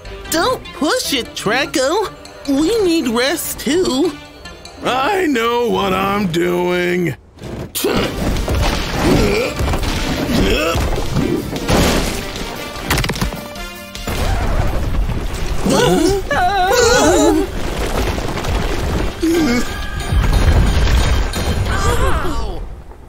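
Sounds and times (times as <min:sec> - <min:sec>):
crashing and booming effects: 0:07.8 - 0:16.3, 0:16.9 - 0:23.0.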